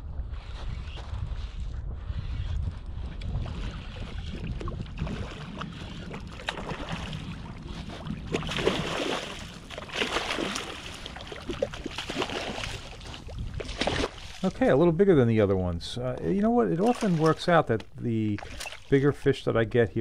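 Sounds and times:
wind rumbling on microphone: 0.0s - 17.2s
fish splashing in water: 4.3s - 14.5s.

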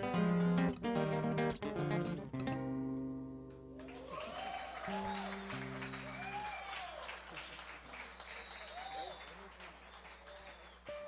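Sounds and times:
whoops: 3.8s - 7.2s, 8.1s - 9.4s
audience applauding and cheering: 3.8s - 11.0s.

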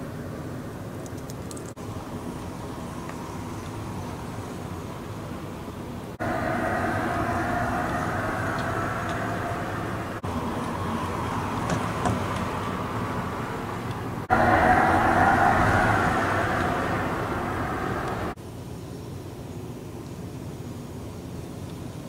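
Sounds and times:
synthesized electric car hum: 1.8s - 18.4s.

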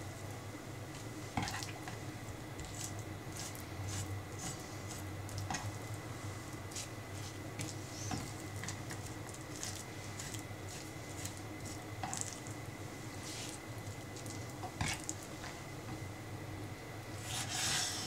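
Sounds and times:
steady low hum: 0.0s - 18.0s
wet squishing of meat: 7.6s - 12.6s.

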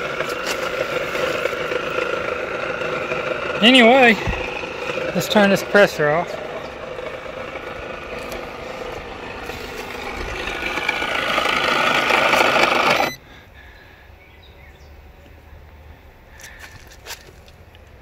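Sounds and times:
air compressor buzzing: 0.0s - 13.2s.

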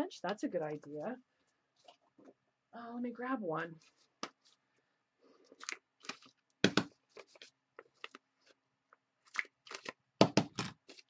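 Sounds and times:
paper rustling and small clicks: 3.8s - 11.0s.

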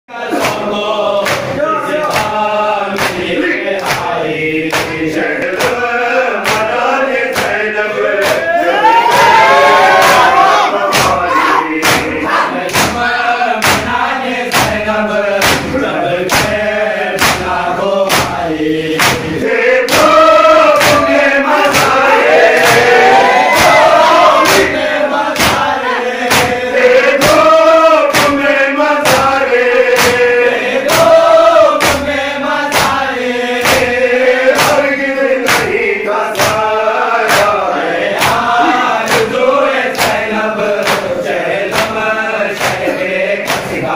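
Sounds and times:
men chanting in unison: 0.1s - 43.9s
hands slapping chests: 1.2s - 2.4s, 3.0s - 5.8s, 6.4s - 7.6s, 8.2s - 8.5s, 11.8s - 12.1s, 12.7s - 13.9s, 15.4s - 16.6s, 17.2s - 18.4s, 19.0s - 26.6s, 28.1s - 30.3s, 31.8s - 33.0s, 33.6s - 37.6s, 38.2s - 43.9s.

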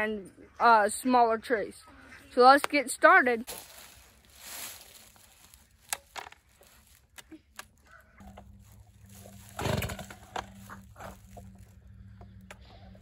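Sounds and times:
low steady hum: 3.5s - 13.0s.

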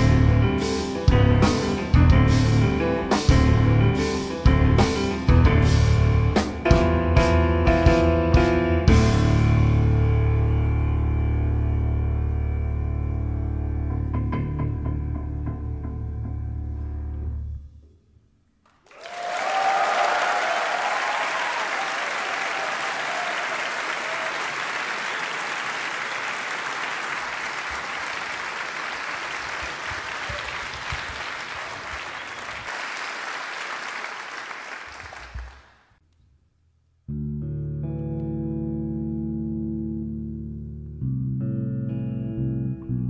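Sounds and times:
plucked bass notes: 0.0s - 17.6s, 37.1s - 43.0s
audience applauding: 18.7s - 35.9s
audience cheering: 18.8s - 35.7s.

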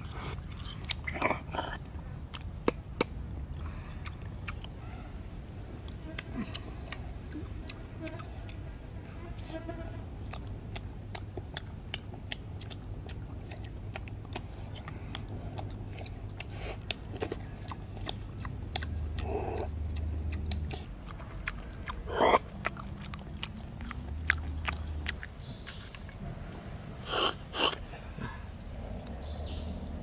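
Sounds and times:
mouth smacks: 0.0s - 4.8s, 10.3s - 26.2s, 27.0s - 27.9s.

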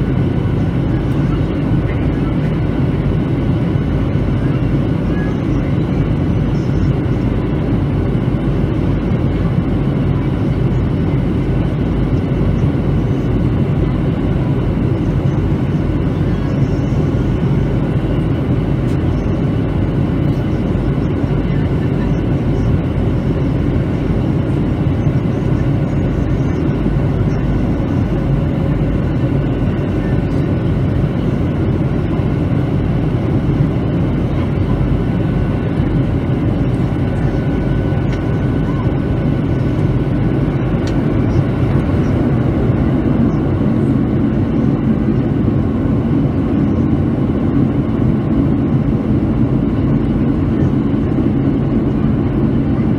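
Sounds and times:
aircraft engine hum: 0.0s - 52.9s.

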